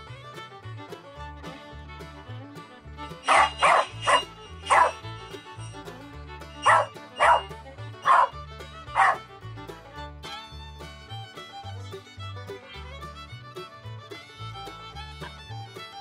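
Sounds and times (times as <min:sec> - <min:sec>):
background music with bass line: 0:00.0 - 0:16.0
dog barking: 0:03.3 - 0:05.0, 0:06.6 - 0:08.3, 0:08.9 - 0:09.2.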